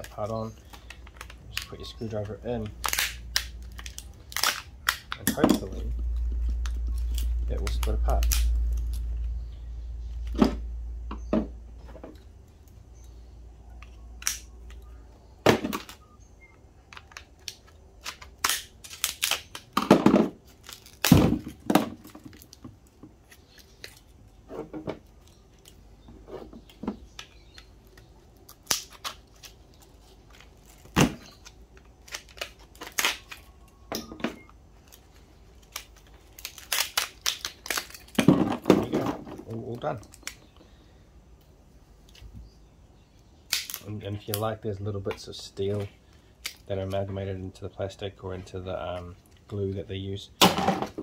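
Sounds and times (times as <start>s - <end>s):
plastic and ferrite cracking: 0.0s - 9.4s, 13.7s - 16.1s, 16.8s - 40.7s, 43.2s - 47.1s.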